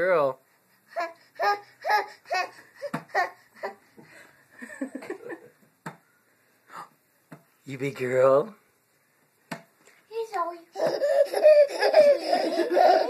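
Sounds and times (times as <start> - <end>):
person giggling: 4.6 - 5.6, 10.9 - 13.0.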